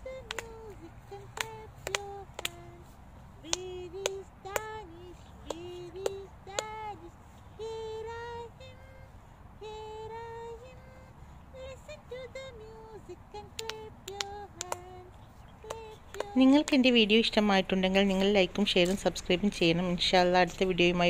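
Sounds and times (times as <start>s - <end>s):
woman singing: 0.0s - 21.0s
hand claps: 0.1s - 6.8s, 13.4s - 16.8s.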